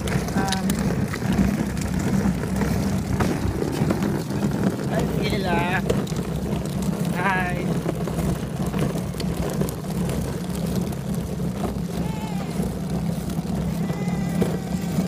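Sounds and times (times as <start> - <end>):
plastic wheels rolling on concrete: 0.0 - 15.0.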